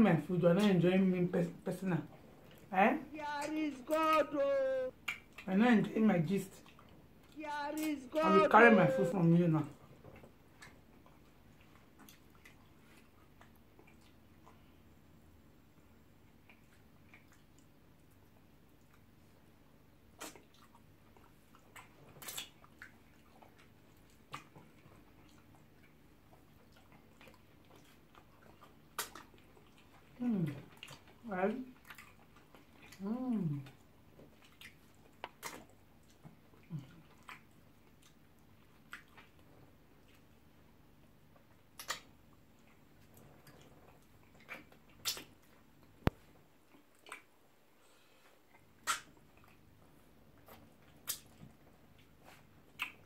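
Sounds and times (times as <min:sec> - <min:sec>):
low steady hum: 0:00.0 - 0:53.0
quiet chewing: 0:02.0 - 0:02.7, 0:04.1 - 0:05.5, 0:06.5 - 0:08.0, 0:09.7 - 0:53.0
wet mouth smacks and slurps: 0:20.1 - 0:31.2, 0:34.2 - 0:36.4, 0:41.7 - 0:42.2, 0:43.1 - 0:45.6, 0:48.5 - 0:49.6, 0:50.3 - 0:53.0
wet mouth smacks: 0:20.2 - 0:20.8, 0:21.7 - 0:22.9, 0:28.6 - 0:29.4, 0:34.4 - 0:36.4, 0:41.7 - 0:42.1, 0:44.4 - 0:46.2, 0:48.5 - 0:49.6, 0:50.4 - 0:51.6, 0:52.3 - 0:53.0.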